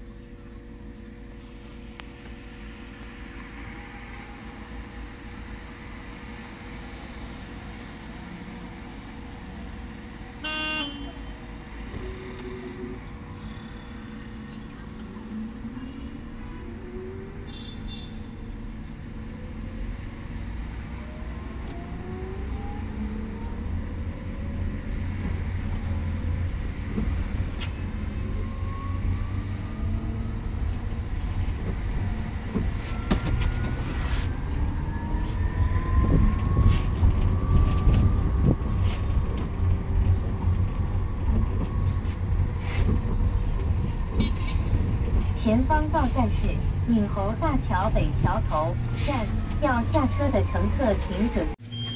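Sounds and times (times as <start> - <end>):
road rumble: 0.0 - 51.9.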